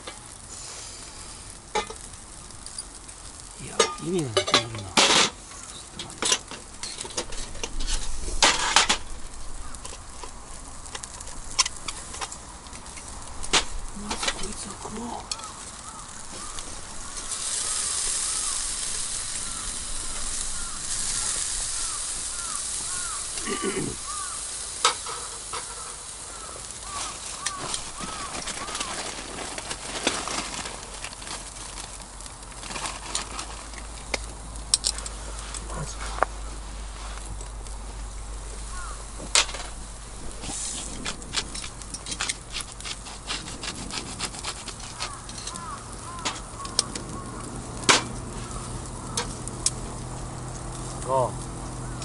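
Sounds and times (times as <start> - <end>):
campfire clicks and crackles: 0.0 - 52.0
meat sizzling on grill: 0.0 - 52.0.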